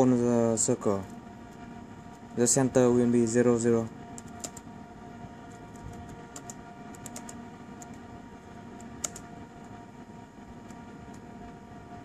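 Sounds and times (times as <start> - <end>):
faint steady hum: 0.0 - 12.0
laptop keyboard key clicks: 5.5 - 8.0, 8.8 - 9.2.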